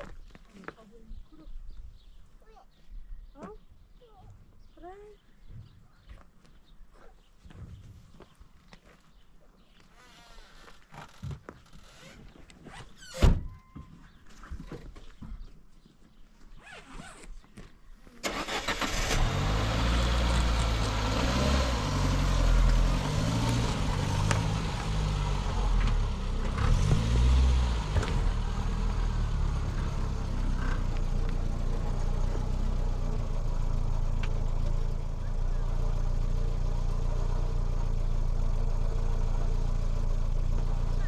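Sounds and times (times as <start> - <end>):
car engine starting and revving: 18.2 - 41.0.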